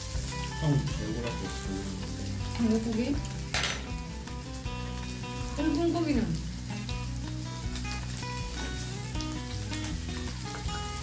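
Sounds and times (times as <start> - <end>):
beef sizzling on grill pan: 0.0 - 11.0
metal tongs clinking on pan: 3.4 - 4.0.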